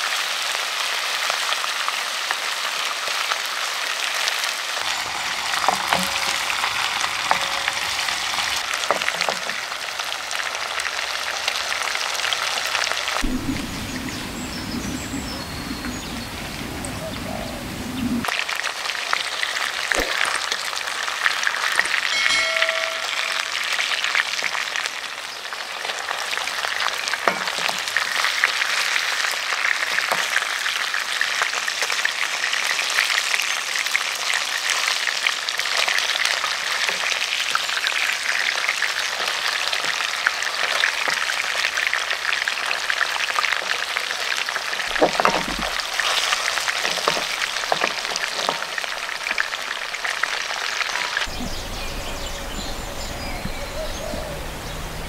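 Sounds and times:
fish deep frying in oil: 0.0 - 16.9, 18.2 - 51.9
metal spatula in pan: 4.9 - 9.7, 21.7 - 24.0, 44.9 - 49.5
brief ringing tone: 22.1 - 24.0.

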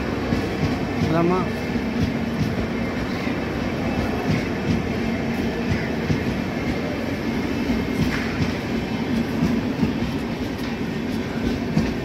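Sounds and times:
train wheels rumbling on track: 0.0 - 12.0.

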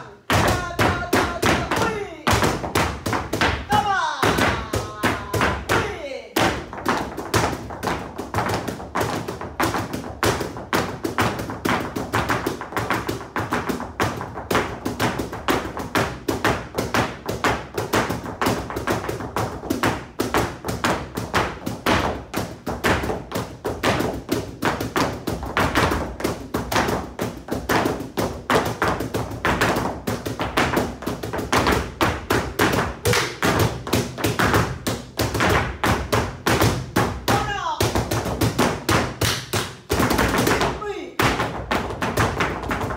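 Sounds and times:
flamenco shoes stamping: 0.0 - 42.9.

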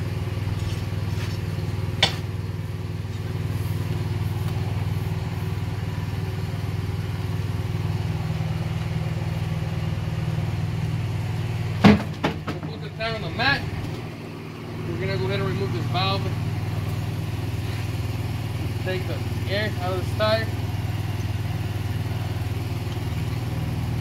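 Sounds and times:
engine idling: 0.0 - 24.0
loud knock: 11.8 - 12.7.

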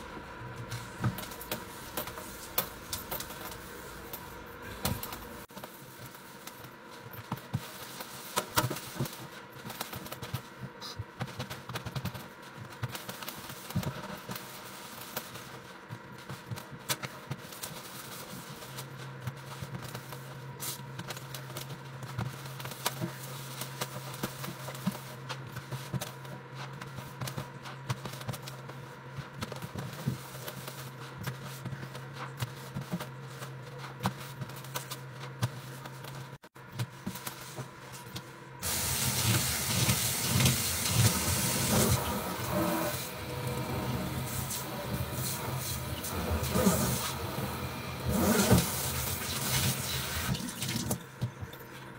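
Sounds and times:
steady low hum: 0.0 - 51.9
sponge scrubbing a steel sink: 38.6 - 50.9.

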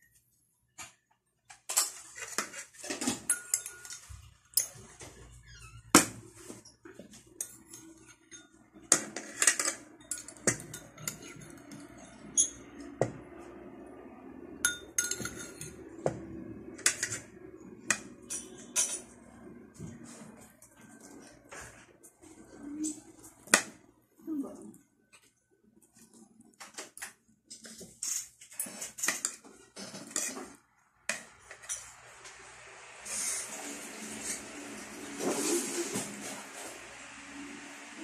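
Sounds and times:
cutlery clinking on ceramic plate: 3.0 - 4.8, 7.4 - 12.7, 14.7 - 15.8.

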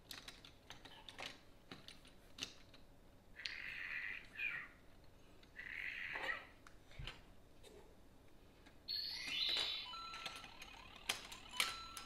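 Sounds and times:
plastic bricks clicking and rattling: 0.0 - 2.8.

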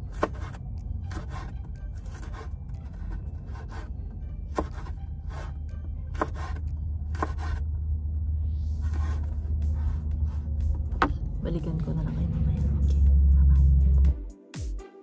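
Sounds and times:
steady low hum: 0.0 - 14.1
faint background music: 0.0 - 15.0
utensil scraping a pan: 0.1 - 7.6, 8.8 - 10.5.

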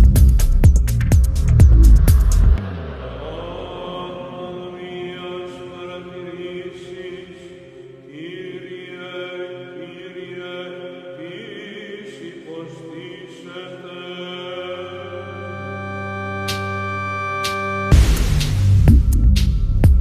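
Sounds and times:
background music with held tones: 14.3 - 20.0.

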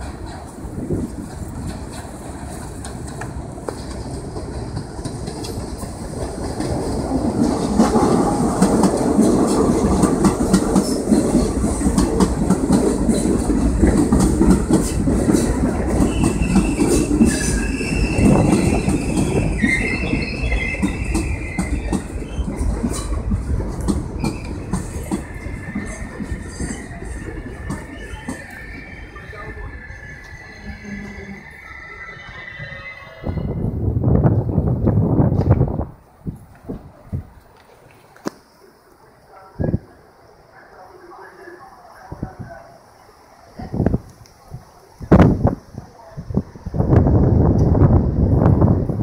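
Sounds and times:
train wheels rumbling on rails: 0.0 - 38.5, 43.6 - 49.0
train brakes squealing: 15.8 - 23.2, 24.2 - 33.7.

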